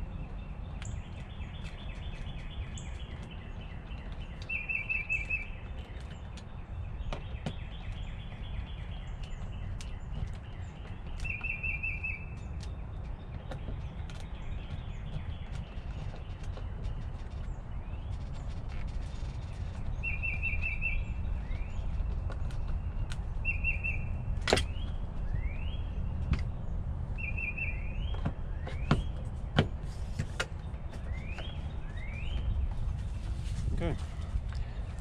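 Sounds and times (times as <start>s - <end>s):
rapid bird trill: 0.9s - 6.0s, 7.2s - 12.8s, 19.0s - 22.2s, 22.8s - 25.9s
steady low rumble: 12.4s - 35.0s.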